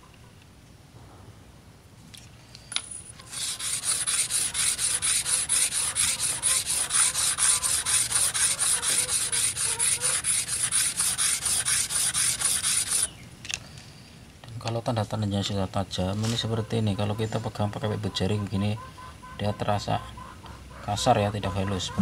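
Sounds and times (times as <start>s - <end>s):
blade rasping on whetstone: 3.2s - 13.1s.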